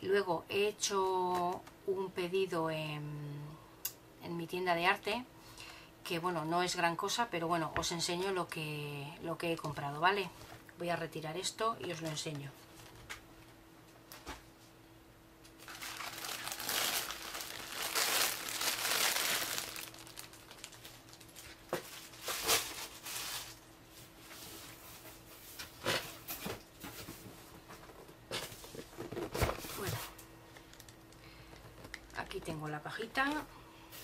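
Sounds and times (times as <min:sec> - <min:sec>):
plastic wrapping crinkling: 0:15.5 - 0:23.7.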